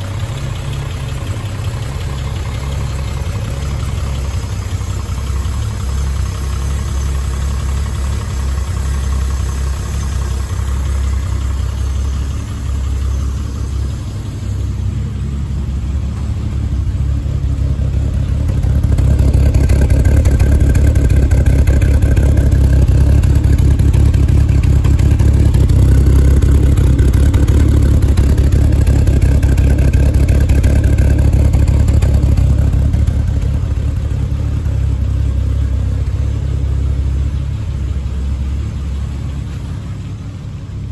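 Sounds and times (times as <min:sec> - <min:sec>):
car engine idling: 0:00.0 - 0:40.9.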